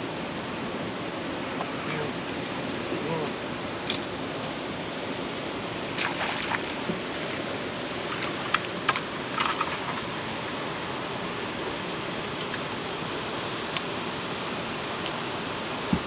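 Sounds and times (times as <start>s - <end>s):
river water rushing: 0.0s - 16.0s
fish splashing in a net: 6.0s - 6.8s, 8.0s - 10.2s.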